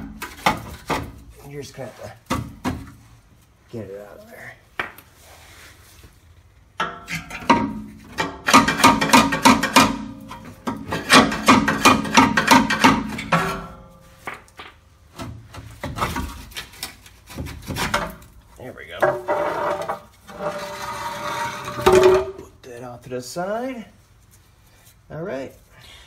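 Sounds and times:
metal clanking and scraping: 6.8 - 14.2, 18.9 - 22.6.

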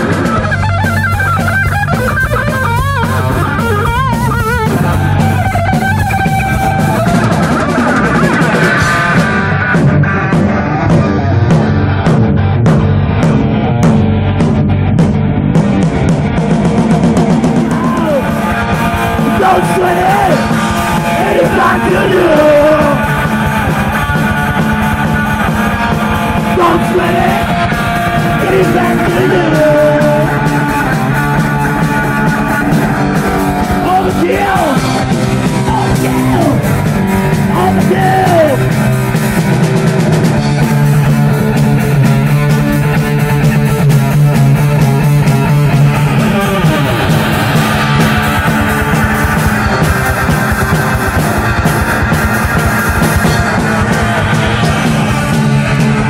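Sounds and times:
bass guitar: 0.0 - 56.0
drum kit: 0.0 - 56.0
electric guitar: 0.0 - 56.0
man singing lead vocal: 17.6 - 23.3, 26.4 - 32.8, 33.6 - 38.8.

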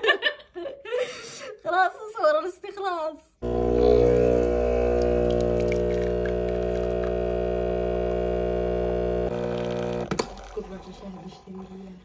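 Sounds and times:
espresso machine pump humming: 3.4 - 10.6.

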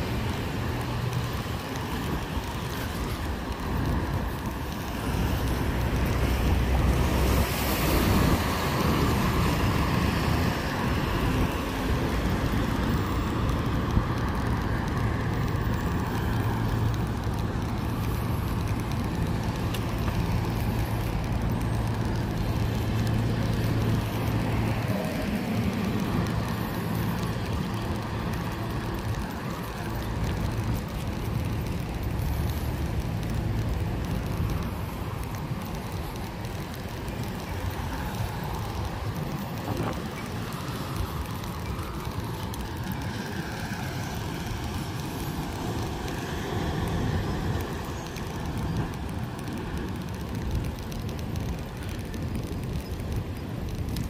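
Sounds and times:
road noise: 0.0 - 54.0
vehicle engine hum: 0.0 - 54.0.

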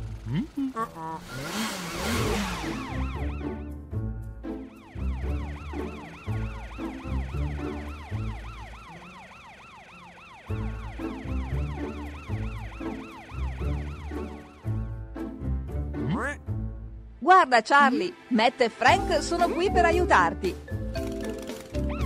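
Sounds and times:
cartoon siren wailing: 2.3 - 3.7, 4.7 - 14.8.

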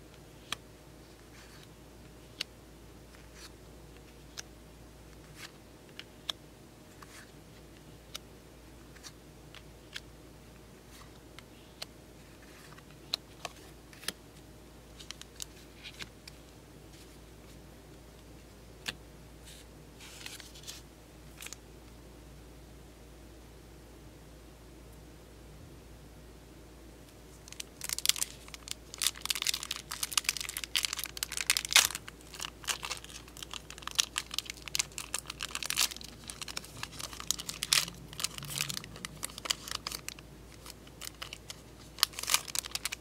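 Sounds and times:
wrapper crinkling: 27.4 - 43.0.

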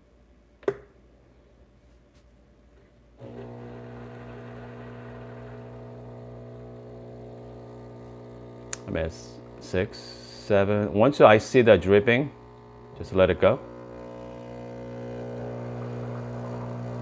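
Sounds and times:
coffee machine pump humming: 3.2 - 17.0
click: 8.6 - 8.9.

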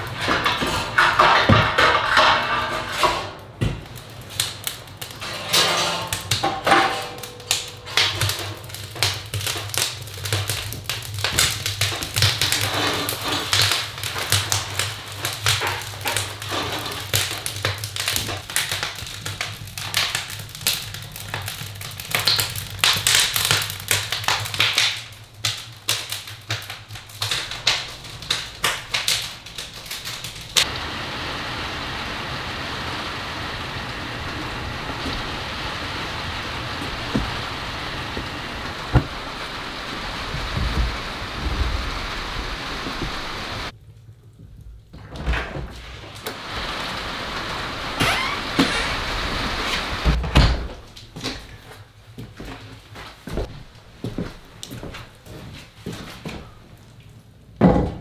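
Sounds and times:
wood fire crackling and popping: 0.0 - 58.0
steady hiss: 25.0 - 43.8, 45.6 - 50.2.

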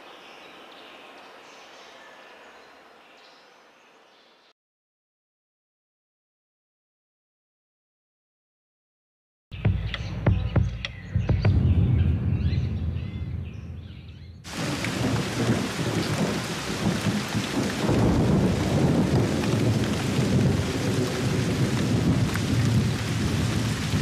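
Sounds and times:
thunder rumbling: 11.2 - 24.0
heavy rain: 14.5 - 24.0.

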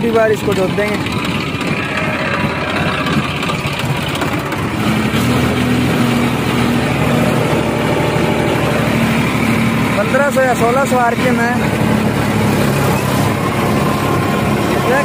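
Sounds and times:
tractor diesel engine under load: 0.0 - 15.0.

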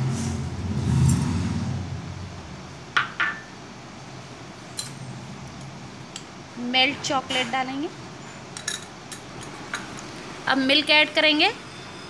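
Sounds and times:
glassware clinking: 3.0 - 3.5.

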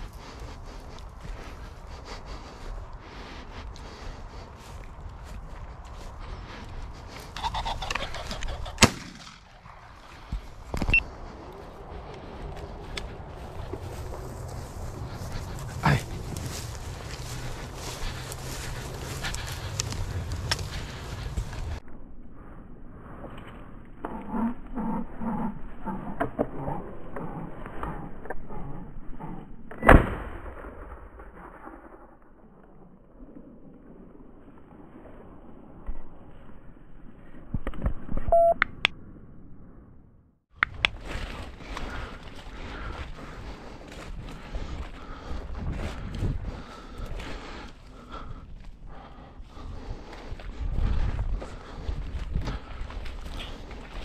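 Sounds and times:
shotgun shot: 8.8 - 9.5
footsteps rustling through crops: 10.0 - 21.8, 40.8 - 54.0.

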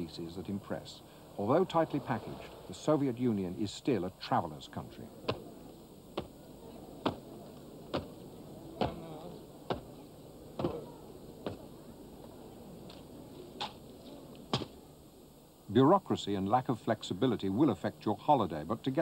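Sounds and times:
boots stamping on stone: 7.9 - 8.2, 8.8 - 9.0, 9.7 - 9.9, 11.4 - 11.7.

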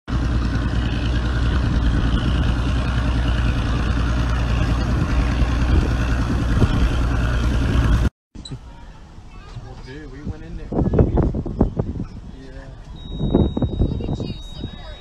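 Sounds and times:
outboard motor idling: 0.1 - 8.8.

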